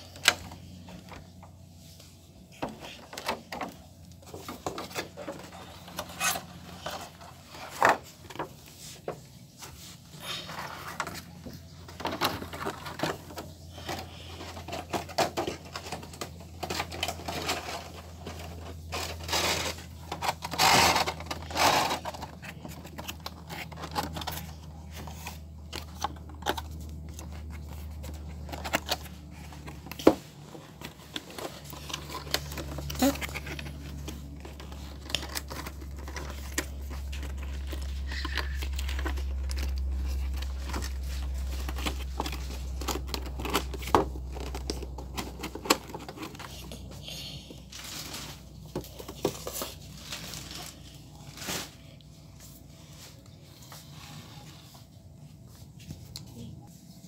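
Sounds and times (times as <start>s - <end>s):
toy packaging crinkling: 9.7s - 52.8s.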